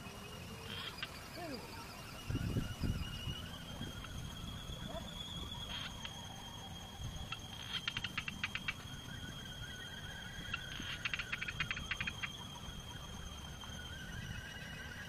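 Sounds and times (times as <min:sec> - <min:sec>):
insects singing: 0:00.0 - 0:15.0
rapid clicking: 0:07.2 - 0:08.9.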